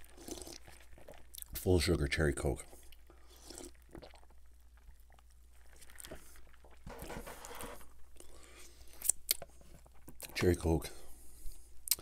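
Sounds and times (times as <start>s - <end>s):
sipping and swallowing: 0.0s - 1.6s, 2.7s - 6.9s.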